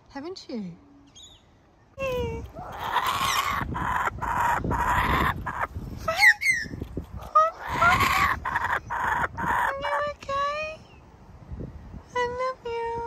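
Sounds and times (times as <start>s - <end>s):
kookaburra harsh squawks: 2.6s - 10.0s.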